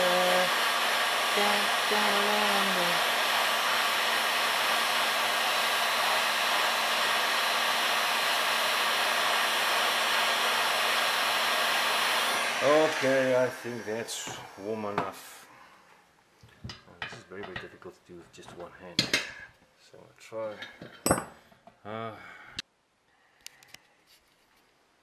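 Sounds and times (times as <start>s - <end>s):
heat gun blowing air: 0.0s - 15.6s
man's voice: 12.5s - 15.4s.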